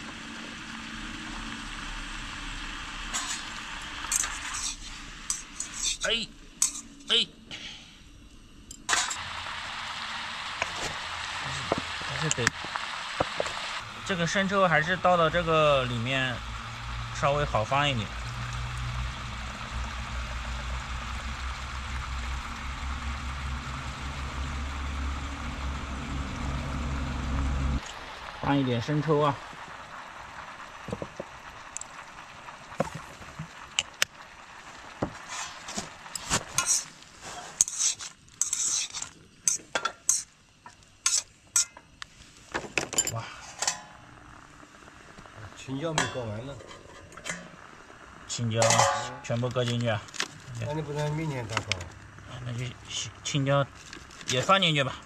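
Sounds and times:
food sizzling in a pan: 0.0s - 7.2s, 8.1s - 55.0s
utensil scraping and clinking: 4.1s - 6.0s, 6.6s - 7.0s, 35.2s - 40.3s, 41.0s - 41.9s, 48.6s - 49.8s
low engine-like hum: 13.8s - 29.4s.

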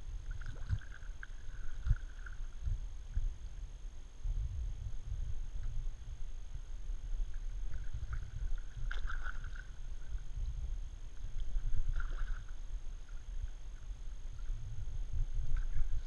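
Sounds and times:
steady low rumble: 0.0s - 16.0s
kayak paddle splashing water: 0.2s - 2.5s, 7.6s - 10.2s, 11.2s - 14.5s, 15.4s - 16.0s.

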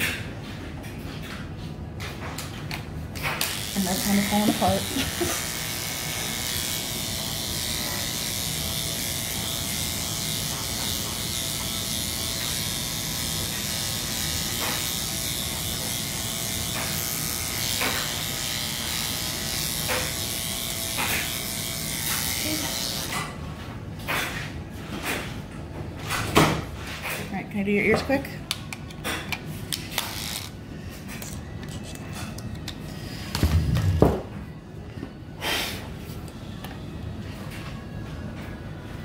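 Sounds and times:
electric clippers buzzing: 3.1s - 23.4s, 29.7s - 30.6s.

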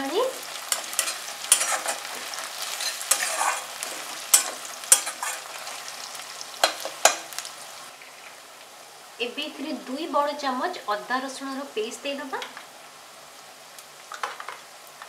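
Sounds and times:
onions sizzling in oil: 0.0s - 15.0s
metal spatula scraping pan: 0.7s - 5.8s.

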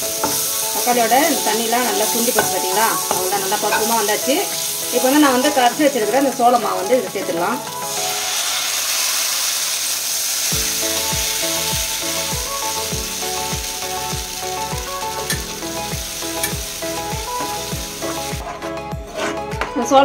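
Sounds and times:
sizzling in a hot pan: 0.0s - 18.4s
metal spatula stirring: 0.1s - 6.4s
music with a steady beat: 10.6s - 20.0s.

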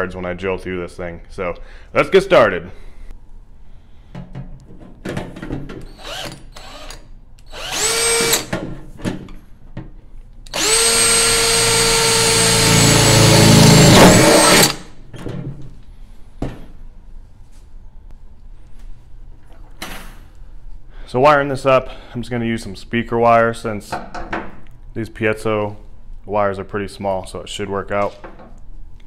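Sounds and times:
cordless drill boring through steel: 5.9s - 8.5s, 10.5s - 14.9s.

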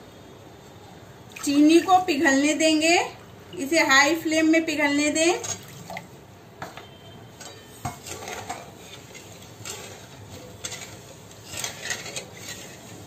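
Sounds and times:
metal spatula scraping steel pan: 7.3s - 13.0s.

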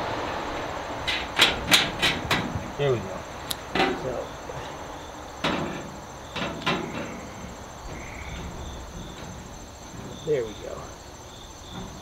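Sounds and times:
insects chirring: 0.0s - 12.0s
metallic knocks on sheet metal: 1.0s - 2.7s, 3.7s - 4.2s, 5.4s - 11.0s.

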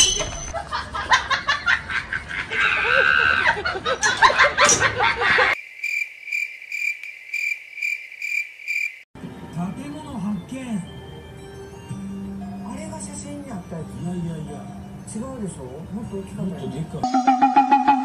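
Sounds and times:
crickets chirping: 5.6s - 9.1s.

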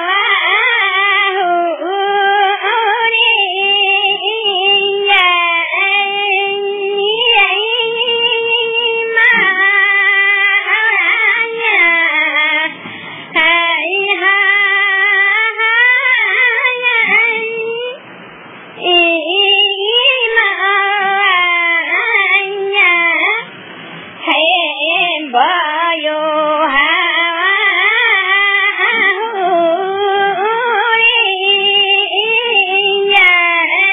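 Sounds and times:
woman singing ornamented melody: 0.0s - 12.7s, 13.4s - 18.0s, 18.8s - 23.5s, 24.2s - 33.9s.

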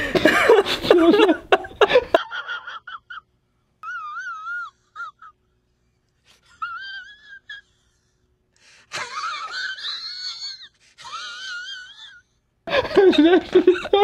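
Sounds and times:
wavering wheezing squeals: 3.8s - 12.5s.

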